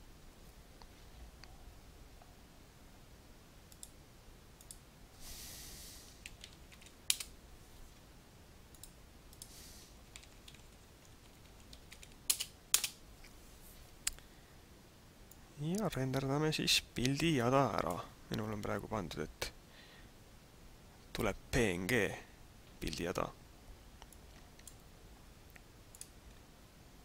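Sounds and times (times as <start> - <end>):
faint steady hiss: 0.0 - 27.0
soft rustling: 13.1 - 14.0.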